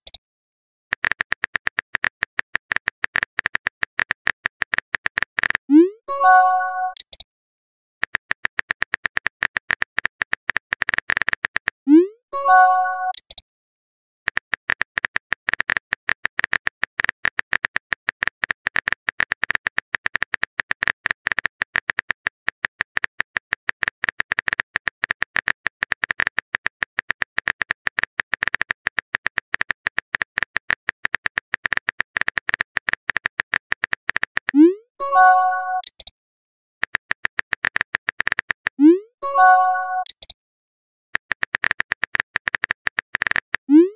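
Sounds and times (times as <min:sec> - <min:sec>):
phone keyboard typing clicks: 0:00.9 - 0:07.2, 0:08.0 - 0:11.8, 0:12.5 - 0:13.4, 0:14.3 - 0:36.1, 0:36.8 - 0:40.4, 0:41.2 - 0:43.9
message chime: 0:06.1 - 0:07.0, 0:12.4 - 0:13.2, 0:35.0 - 0:35.9, 0:39.2 - 0:40.1.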